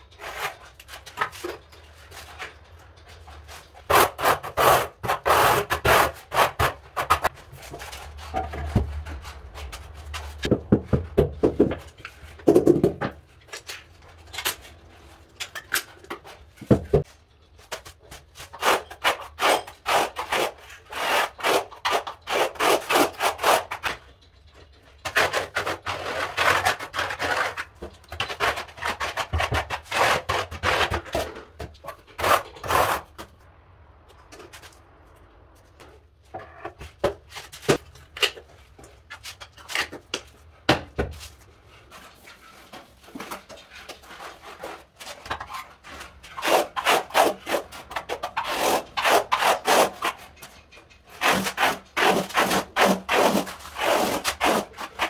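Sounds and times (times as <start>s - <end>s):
trowel scraping tile adhesive: 18.1s - 24.1s, 25.0s - 33.3s, 43.2s - 55.0s.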